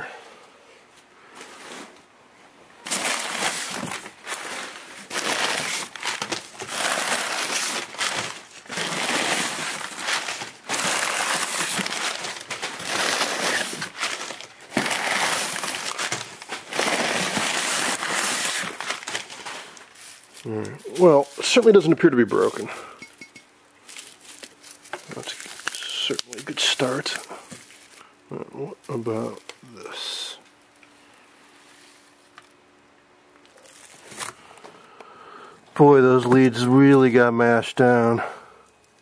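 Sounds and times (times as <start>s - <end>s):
paper and bubble wrap rustling: 2.8s - 23.0s, 23.8s - 28.1s, 31.4s - 32.4s, 33.5s - 34.4s.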